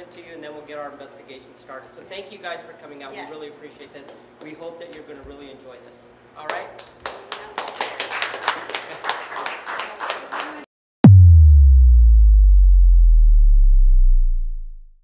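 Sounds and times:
small group clapping: 6.5s - 10.7s
cinematic impact boom: 11.0s - 15.0s.

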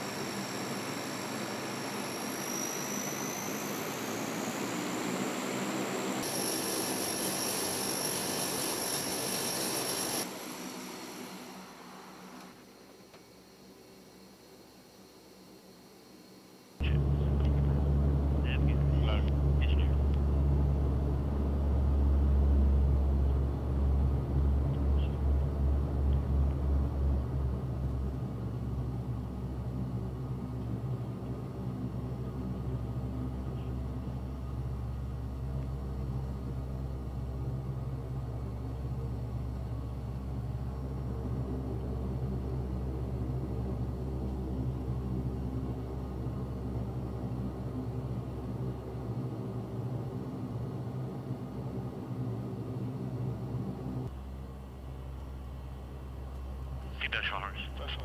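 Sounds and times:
turboprop engines droning: 0.0s - 58.0s.

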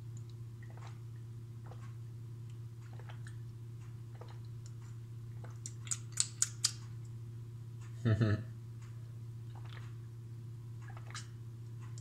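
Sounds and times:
person gulping and swallowing: 0.3s - 1.0s, 2.8s - 3.4s, 4.1s - 4.7s, 9.4s - 10.0s, 10.8s - 11.4s.

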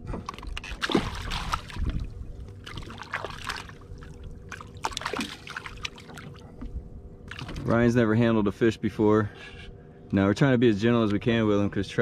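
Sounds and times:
fish splashing in water: 0.3s - 6.5s.

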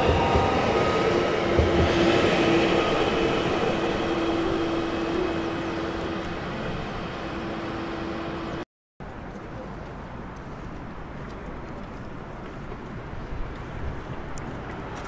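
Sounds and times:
train rolling past: 0.0s - 8.6s.

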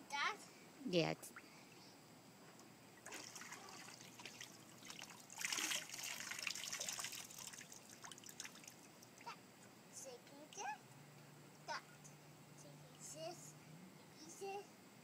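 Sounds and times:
water splashing and trickling: 3.0s - 9.4s.

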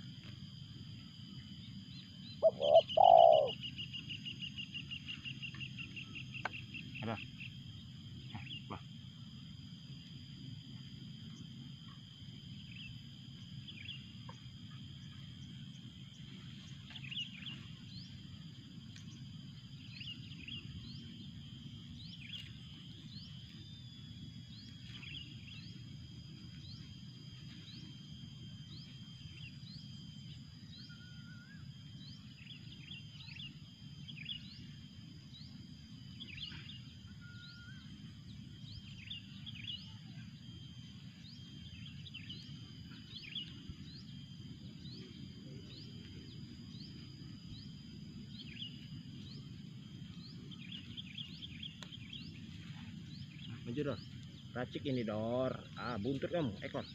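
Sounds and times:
high insect drone: 0.0s - 56.9s
bird chirping: 1.6s - 7.5s, 36.2s - 40.4s, 41.0s - 56.9s.

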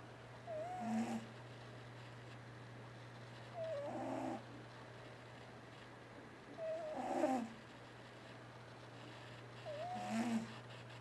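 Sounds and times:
cat snoring: 0.5s - 1.3s, 3.6s - 4.4s, 6.6s - 7.5s, 9.7s - 10.6s.

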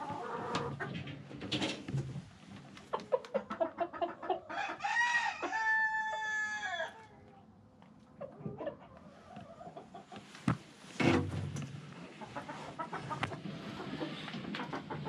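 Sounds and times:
chickens clucking: 0.0s - 15.0s
rooster crowing: 4.5s - 7.0s.

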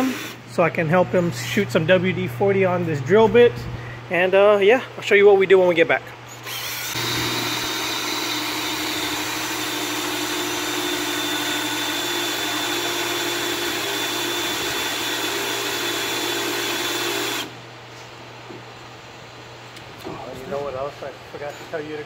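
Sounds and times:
cordless drill whining: 0.0s - 0.4s, 6.4s - 17.6s.

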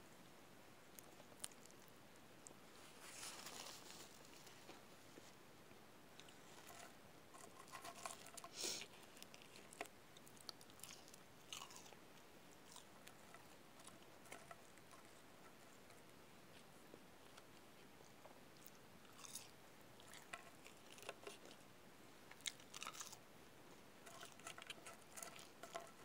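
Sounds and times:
chewing food: 0.9s - 2.6s, 6.2s - 21.6s, 22.3s - 23.2s, 24.0s - 26.0s.

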